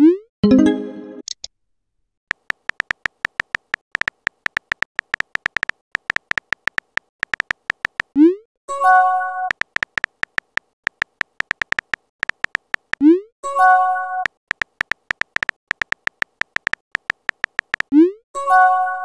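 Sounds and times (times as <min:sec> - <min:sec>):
keyboard typing clicks: 0:02.3 - 0:08.2, 0:09.5 - 0:13.0, 0:14.2 - 0:17.9.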